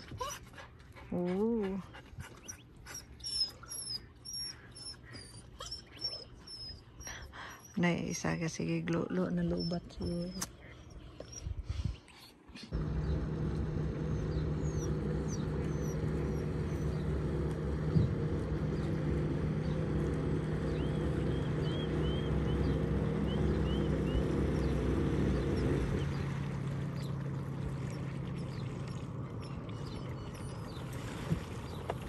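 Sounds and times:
jet ski engine: 12.7s - 32.0s.

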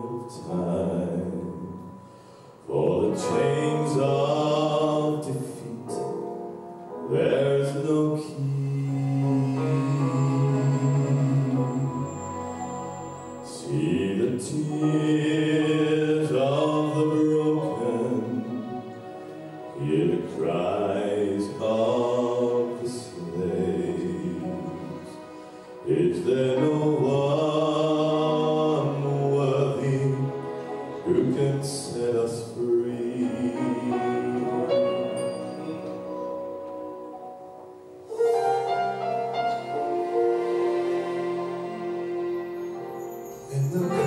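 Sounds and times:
male vocal group singing in harmony: 2.6s - 6.1s, 7.0s - 18.8s, 19.6s - 36.3s, 43.5s - 44.0s.

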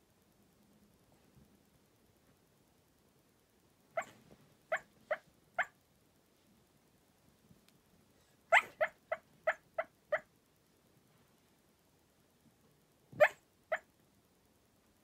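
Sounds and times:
dog barking in sleep: 3.9s - 5.8s, 8.5s - 10.3s, 13.1s - 13.9s.

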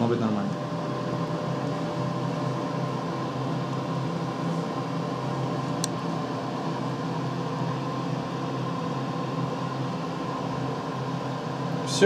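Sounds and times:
appliance fan motor hum: 0.0s - 12.0s.

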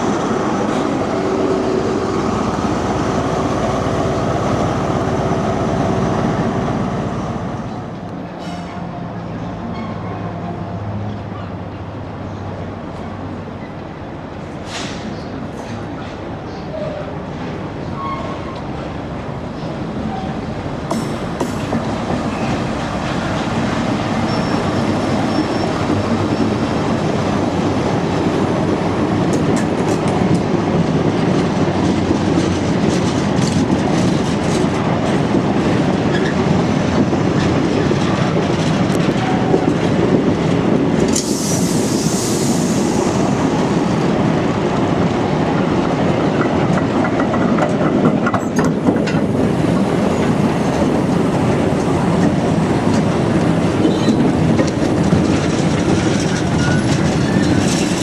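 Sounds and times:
train wheels clickety-clack: 19.6s - 58.0s
brief high hiss: 41.2s - 43.2s.

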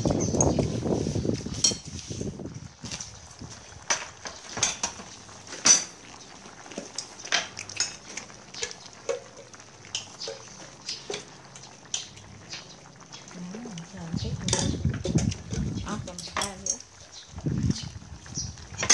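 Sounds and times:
chopsticks and spoons clinking dishes: 1.6s - 1.9s, 16.1s - 16.8s.

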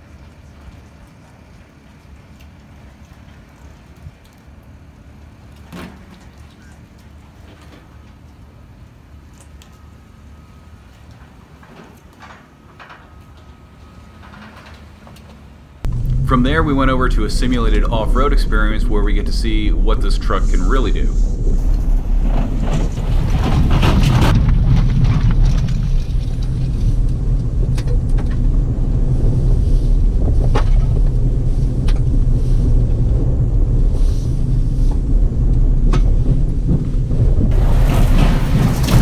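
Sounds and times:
truck engine rumble: 12.5s - 39.0s
wind on microphone: 15.9s - 39.0s.

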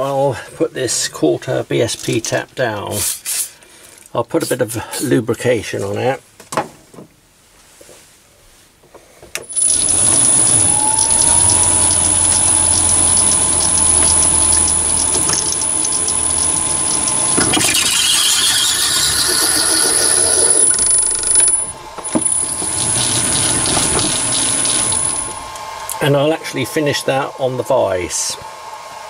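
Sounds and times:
lathe motor whining: 9.4s - 29.0s.

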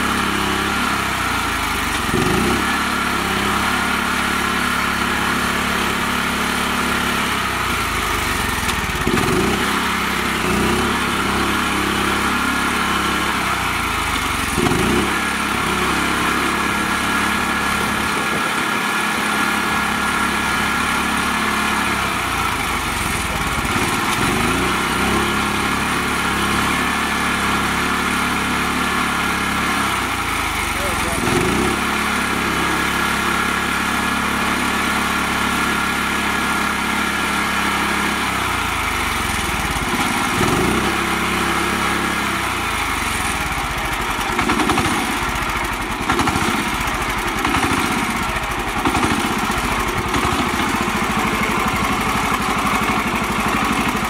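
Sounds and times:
small diesel engine revving: 0.0s - 54.0s.

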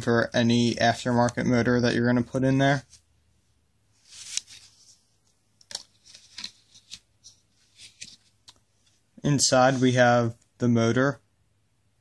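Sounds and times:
paper and plastic rustling: 5.7s - 8.4s.

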